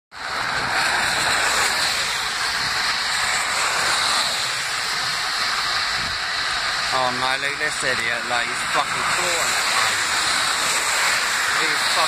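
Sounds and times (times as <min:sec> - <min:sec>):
heavy rain hissing: 0:00.1 - 0:12.0
traffic swishing through water: 0:00.1 - 0:12.0.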